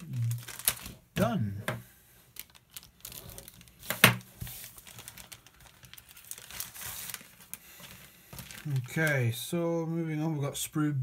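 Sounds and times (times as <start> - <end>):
plastic bag crinkling: 0.0 - 1.5, 2.3 - 9.4.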